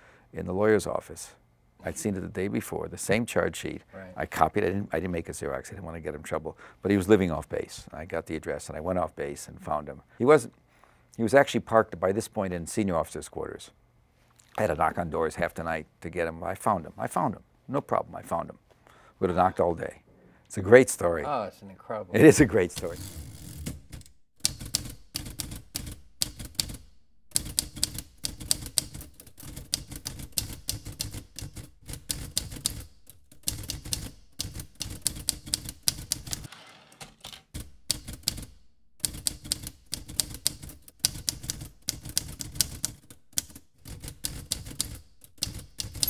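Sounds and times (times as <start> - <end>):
typewriter keys clacking: 23.6 - 46.0.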